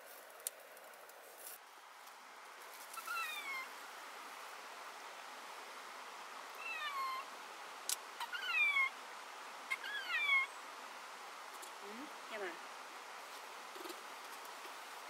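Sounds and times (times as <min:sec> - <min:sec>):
animal calling: 0:03.0 - 0:03.7, 0:06.6 - 0:07.3, 0:09.7 - 0:10.5.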